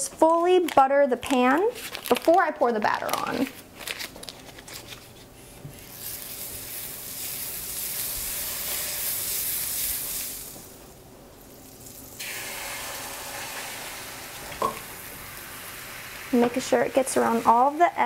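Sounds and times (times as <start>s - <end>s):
batter sizzling in a frying pan: 5.9s - 18.0s.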